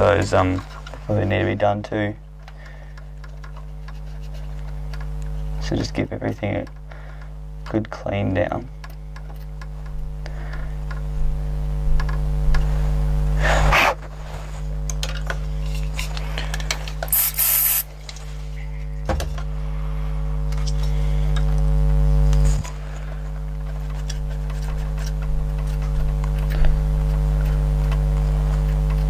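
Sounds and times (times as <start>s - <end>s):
steady low hum: 0.0s - 29.0s
contact cleaner spray hiss: 17.1s - 17.9s.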